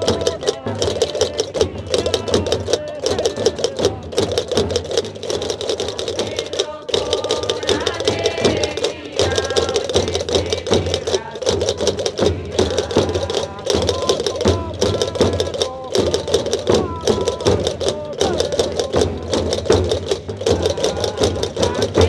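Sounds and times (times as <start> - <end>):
drums beaten with sticks: 0.0 - 22.0
group of voices singing: 0.0 - 22.0
rapid castanet clacking: 0.0 - 22.0.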